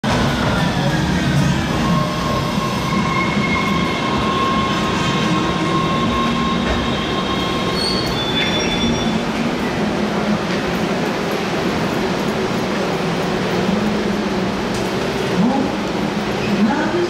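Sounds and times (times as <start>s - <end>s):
subway train rumble: 0.0s - 17.0s
high-pitched brake squeal: 1.7s - 9.2s
short high squeaks: 7.7s - 9.1s.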